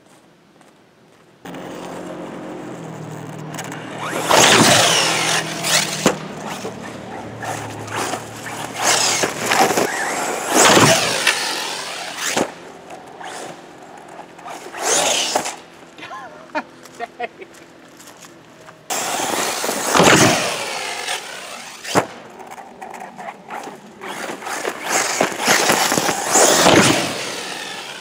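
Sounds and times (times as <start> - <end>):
electric rc car motor whining: 1.5 - 16.0, 18.9 - 28.0.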